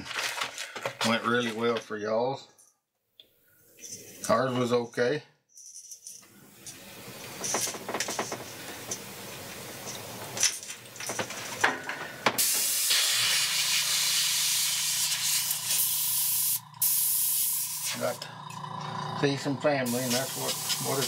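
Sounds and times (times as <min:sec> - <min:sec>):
airbrush spraying hiss: 0:12.4 - 0:18.3, 0:19.8 - 0:21.0
low pulsing hum: 0:15.4 - 0:21.0.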